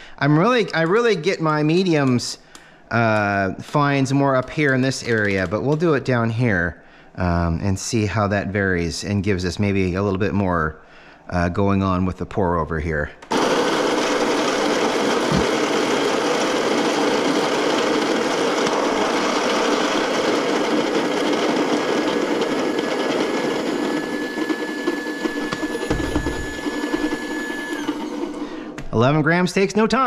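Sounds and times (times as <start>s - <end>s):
coffee grinder whirring: 13.3s - 28.8s
low thump: 25.9s - 26.5s.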